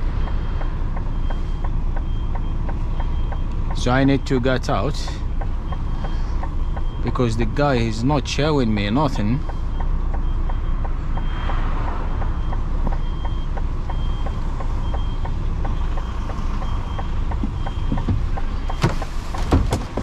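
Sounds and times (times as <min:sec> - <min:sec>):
reversing alarm beeping: 0:00.0 - 0:19.1
diesel truck engine idling: 0:00.0 - 0:20.0
clunks: 0:16.0 - 0:20.0.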